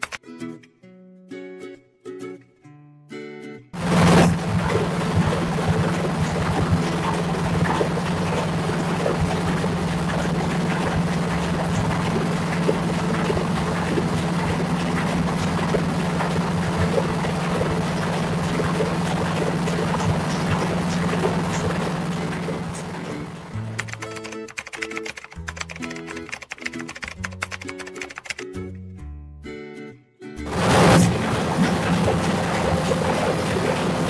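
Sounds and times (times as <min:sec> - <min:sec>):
diesel machinery running: 0:03.8 - 0:23.9, 0:30.5 - 0:34.0.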